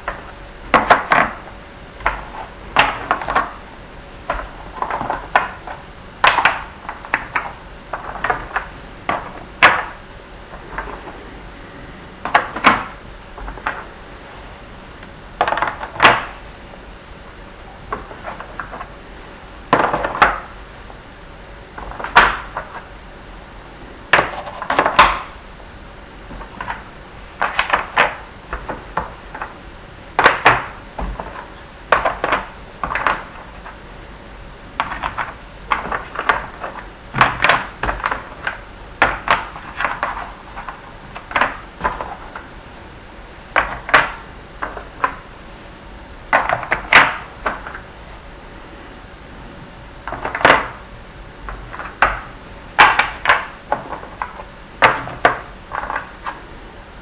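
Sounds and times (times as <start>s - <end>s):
pieces clicking into board slots: 0.0s - 1.4s, 2.0s - 3.6s, 4.3s - 10.0s, 12.2s - 13.9s, 15.4s - 16.4s, 24.1s - 25.3s, 27.4s - 29.5s, 30.2s - 33.7s, 34.8s - 42.5s, 43.6s - 45.2s, 50.1s - 50.8s, 51.5s - 56.4s.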